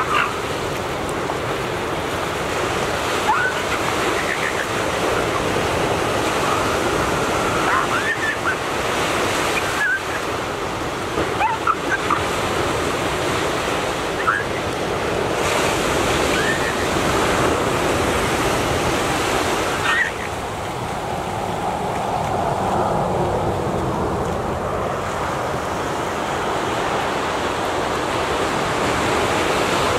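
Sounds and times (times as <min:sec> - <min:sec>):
ocean waves and surf: 0:00.0 - 0:29.9
faint high-pitched calls: 0:03.3 - 0:05.5.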